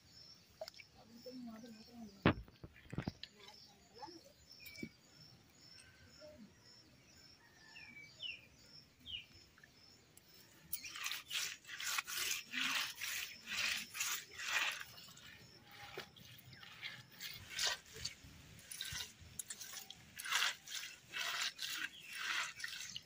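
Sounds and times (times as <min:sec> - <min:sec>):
faint high bird chirps: 0:00.0 - 0:11.6
hands scrubbing fish on dirt: 0:10.7 - 0:23.0.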